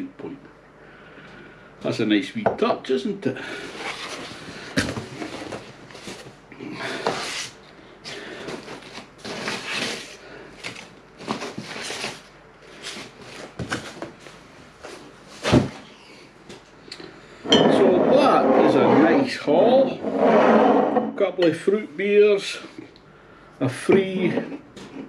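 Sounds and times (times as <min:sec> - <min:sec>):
cardboard rustling and scraping: 0:03.7 - 0:06.4, 0:08.4 - 0:15.8.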